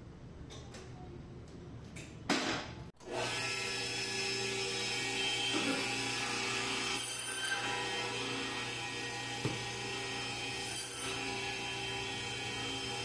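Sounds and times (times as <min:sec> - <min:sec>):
electric band saw whining: 0:03.0 - 0:13.0.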